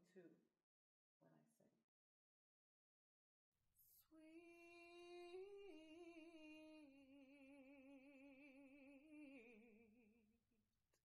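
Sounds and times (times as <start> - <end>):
woman singing without words: 3.8 - 10.2.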